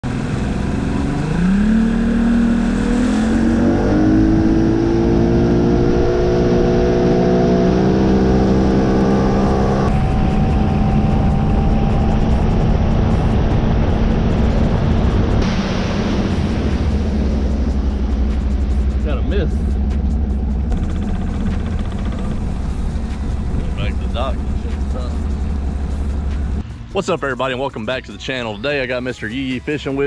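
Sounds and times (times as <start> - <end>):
outboard motor running: 7.7 - 26.6.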